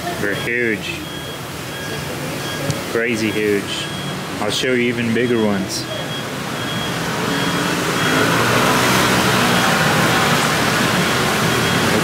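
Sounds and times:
street traffic rushing: 0:00.0 - 0:12.0.

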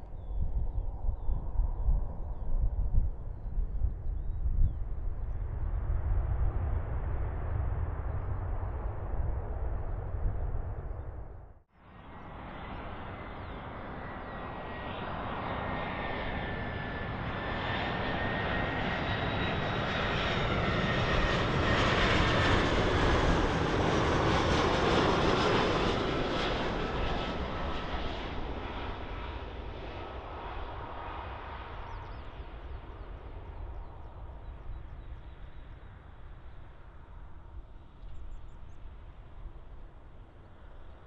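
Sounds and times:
airliner engine passing: 0:00.0 - 0:41.0
jet engine whine falling in pitch: 0:12.0 - 0:37.1.

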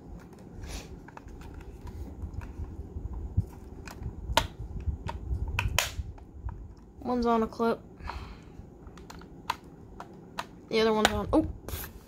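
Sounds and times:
sharp plastic clicks: 0:03.8 - 0:06.8.

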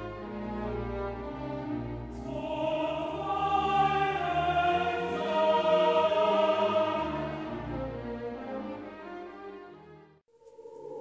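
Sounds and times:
orchestral music: 0:00.0 - 0:11.0
choir singing held notes: 0:01.9 - 0:08.2, 0:10.4 - 0:11.0.

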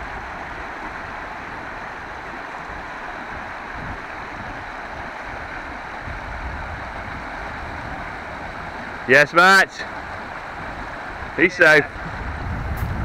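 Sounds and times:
river rushing over stones: 0:00.0 - 0:13.0.

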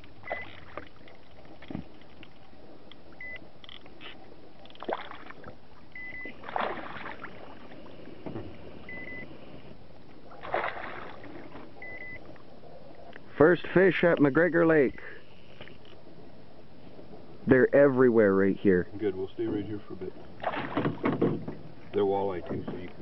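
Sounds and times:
fish splashing and thrashing: 0:00.0 - 0:02.6, 0:03.7 - 0:08.9, 0:10.3 - 0:12.0, 0:20.3 - 0:21.6
water: 0:00.0 - 0:23.0
wind: 0:00.0 - 0:23.0
short electronic beep: 0:06.0 - 0:06.3, 0:08.9 - 0:09.3, 0:11.8 - 0:12.2.

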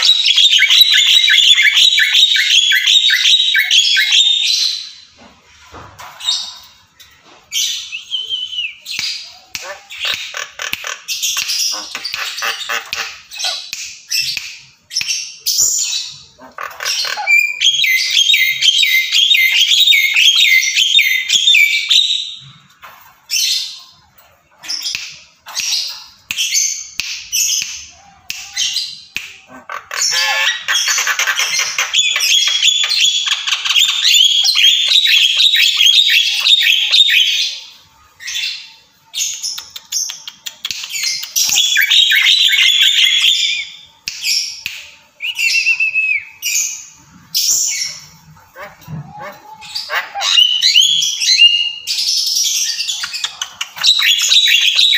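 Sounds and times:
bird chattering with harsh calls: 0:09.6 - 0:14.3.

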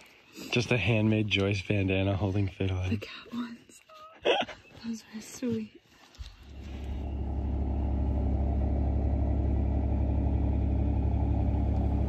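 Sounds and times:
pickup engine idling: 0:06.4 - 0:12.0.

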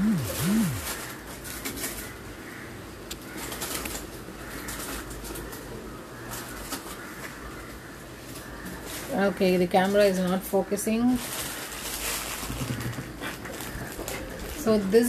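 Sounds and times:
pigeon cooing: 0:00.0 - 0:01.0, 0:12.4 - 0:14.5.

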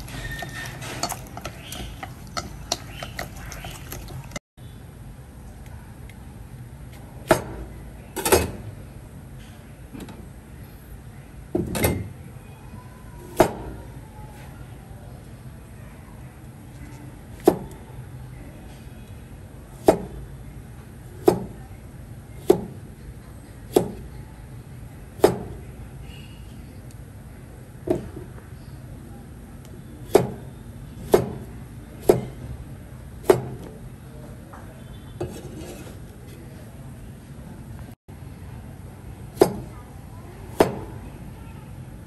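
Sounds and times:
knife chopping on cutting board: 0:39.4 - 0:39.7.

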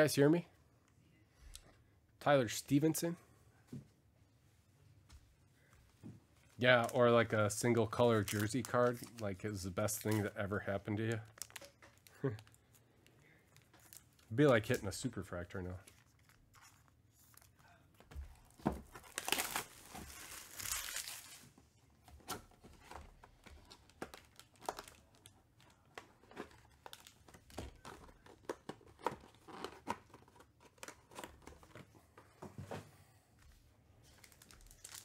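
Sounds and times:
wrapping being ripped off: 0:19.0 - 0:21.5, 0:34.2 - 0:35.0.

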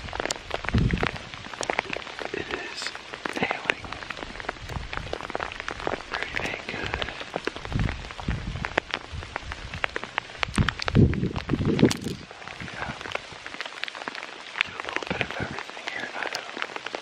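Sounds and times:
rain pattering: 0:00.0 - 0:17.0
low rumbling thumps: 0:03.8 - 0:13.4.

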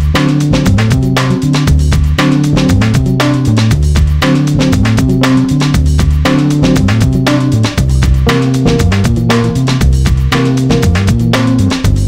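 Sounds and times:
music with drum beat and bass: 0:00.0 - 0:12.0.

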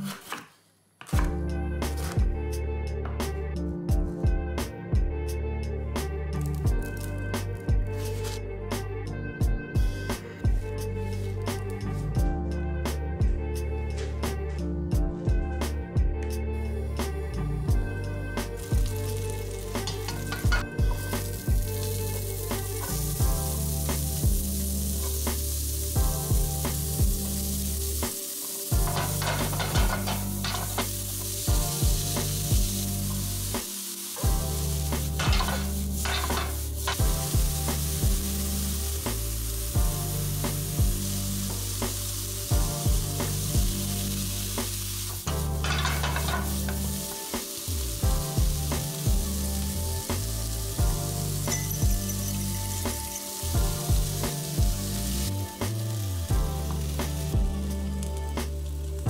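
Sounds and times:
background music with beat: 0:01.2 - 0:59.0
vegetables sizzling in frying pan: 0:18.4 - 0:59.0
stirring and scraping pan: 0:28.8 - 0:31.7, 0:35.0 - 0:37.4, 0:45.3 - 0:47.1.

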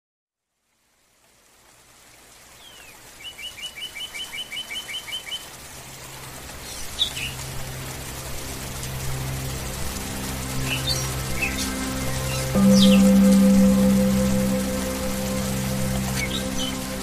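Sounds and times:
rain hiss: 0:00.4 - 0:17.0
bird chirping: 0:10.7 - 0:17.0
low steady hum: 0:11.6 - 0:17.0.

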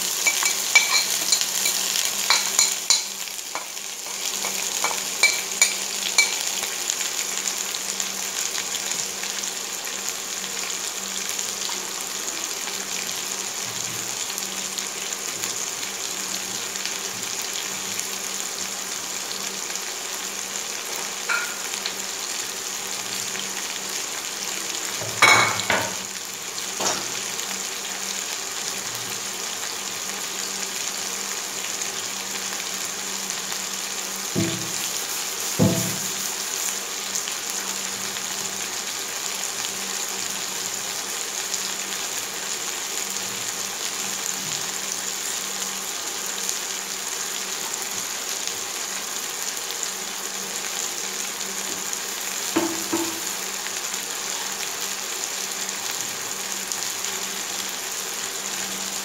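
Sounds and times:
vegetables sizzling in oil: 0:00.0 - 0:59.0
knock: 0:34.4 - 0:34.8, 0:35.6 - 0:36.1, 0:52.6 - 0:53.2.

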